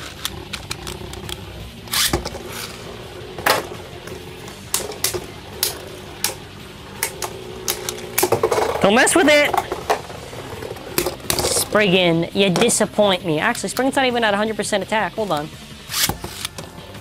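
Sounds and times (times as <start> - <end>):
spinning tops whirring: 0.0 - 12.7
tops clacking together: 3.4 - 11.7.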